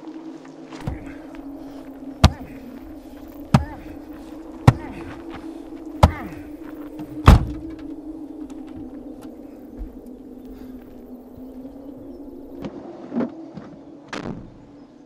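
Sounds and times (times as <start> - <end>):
steady low hum: 0.0 - 15.0
man's muffled cries: 2.2 - 2.7, 3.5 - 5.3, 6.0 - 6.6.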